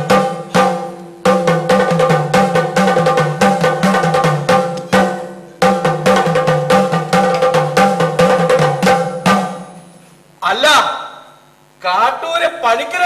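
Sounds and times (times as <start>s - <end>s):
fast ringing drum rhythm: 0.0s - 10.0s.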